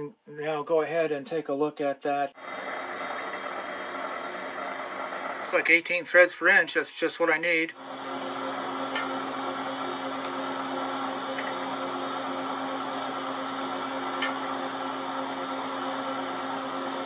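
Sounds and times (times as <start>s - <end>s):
metal lathe motor and gear whir: 2.4s - 5.8s, 7.8s - 17.0s.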